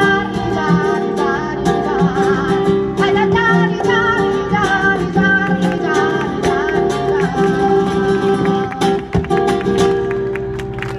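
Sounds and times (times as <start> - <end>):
guitar accompaniment: 0.0 - 10.9.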